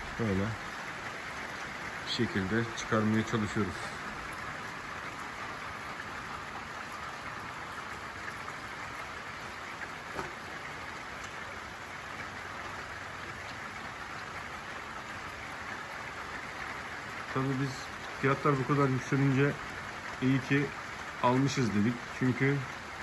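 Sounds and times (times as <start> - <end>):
rain hissing: 0.0 - 23.0
faint raindrop ticks: 7.6 - 23.0.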